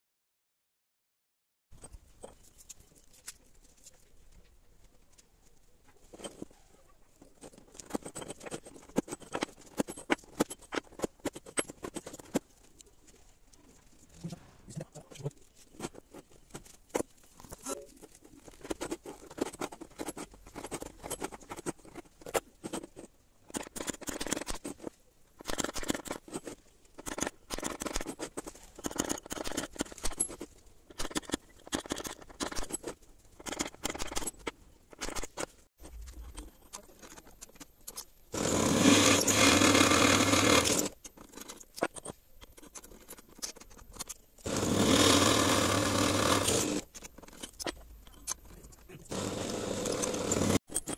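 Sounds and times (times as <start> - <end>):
electric drill boring into steel: 38.4 - 40.9, 44.5 - 46.8, 49.1 - 50.6
tools scraping on wooden workbench: 38.4 - 43.7, 44.5 - 47.7, 49.1 - 50.9.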